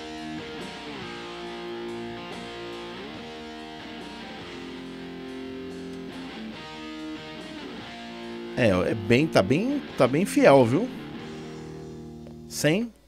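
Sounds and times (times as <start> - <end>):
electric guitar strummed chords: 0.0 - 12.6.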